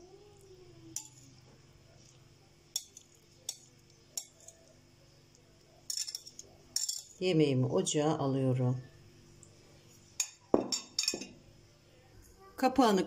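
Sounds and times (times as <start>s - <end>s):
fork clinking against plate and pan: 2.7s - 4.6s, 5.9s - 7.2s, 10.2s - 11.4s.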